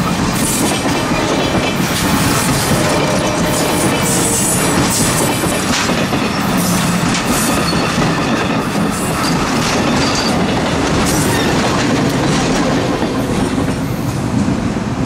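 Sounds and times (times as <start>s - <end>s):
train wheels clacking on rails: 0.0s - 15.0s.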